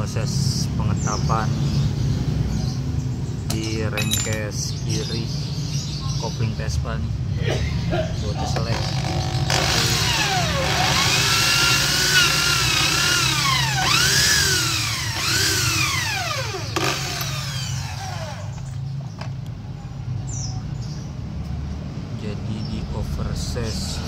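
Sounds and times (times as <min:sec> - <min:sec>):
electric drill motor whine: 0:08.8 - 0:18.6.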